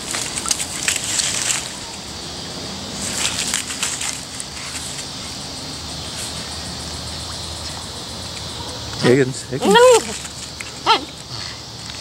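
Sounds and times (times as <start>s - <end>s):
dry leaves crunching underfoot: 0.0s - 6.5s.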